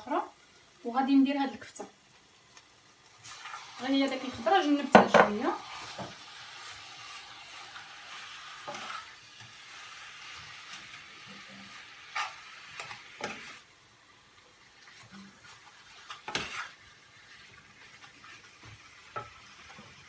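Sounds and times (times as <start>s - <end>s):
meat sizzling in a frying pan: 0.0s - 20.0s
utensil scraping and knocking pan: 15.4s - 16.8s.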